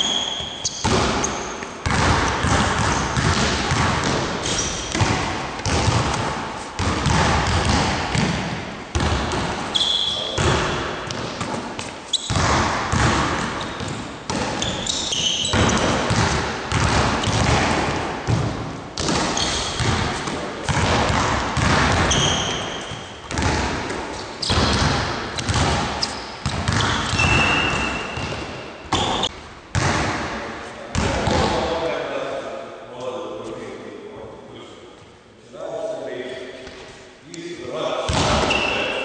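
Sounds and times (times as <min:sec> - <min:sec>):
sneaker squeaks: 0:00.0 - 0:03.3, 0:04.4 - 0:05.0, 0:09.6 - 0:16.2, 0:19.0 - 0:20.8, 0:21.9 - 0:23.4, 0:24.1 - 0:29.3, 0:38.1 - 0:39.0
basketballs bouncing on wooden floor: 0:00.0 - 0:31.7, 0:38.1 - 0:38.9.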